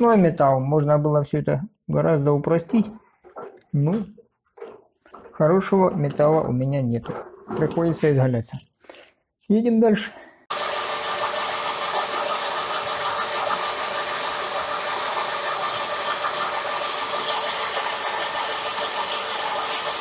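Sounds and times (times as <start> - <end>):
metal lathe drilling with whine: 10.5 - 20.0.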